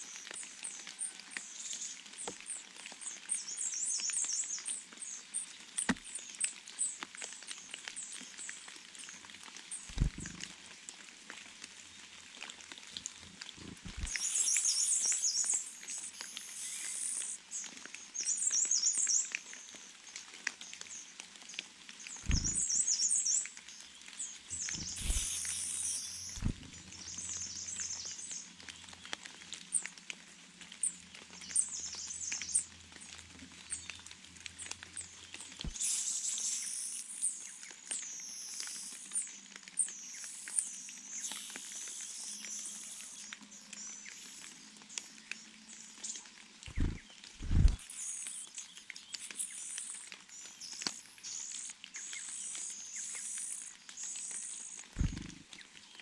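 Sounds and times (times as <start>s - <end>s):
low thumps: 9.9s - 10.4s, 22.3s - 22.6s, 26.4s - 26.8s, 46.7s - 47.8s, 55.0s - 55.4s
nestlings chittering: 9.9s - 10.5s, 13.8s - 17.4s, 22.3s - 22.9s, 24.5s - 27.4s, 46.7s - 47.8s, 55.0s - 55.4s
high bird calls: 22.3s - 23.4s, 24.5s - 28.2s, 46.7s - 47.8s, 55.0s - 55.4s.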